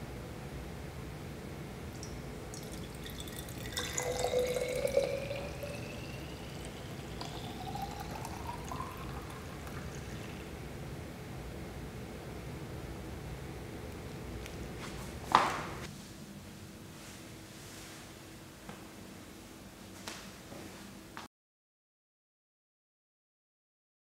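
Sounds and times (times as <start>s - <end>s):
juice pouring into glass bottle: 2.0s - 10.6s.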